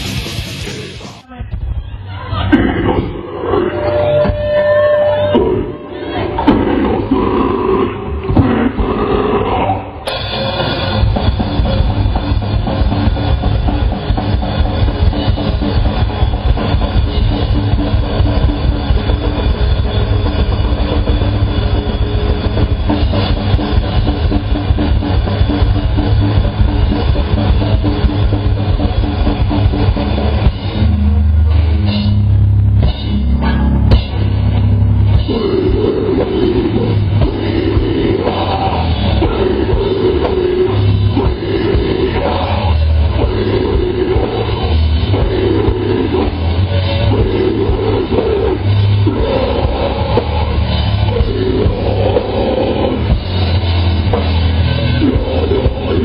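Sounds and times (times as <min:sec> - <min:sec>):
vocals: 0:00.0 - 0:10.5, 0:35.1 - 0:56.0
live heavy metal band: 0:00.0 - 0:56.0.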